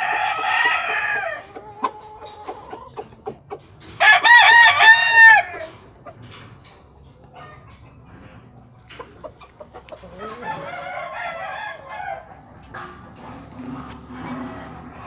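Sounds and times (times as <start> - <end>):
rooster crowing: 0.0 - 1.5, 4.0 - 5.7, 10.2 - 12.4
soft clucks: 5.6 - 10.6.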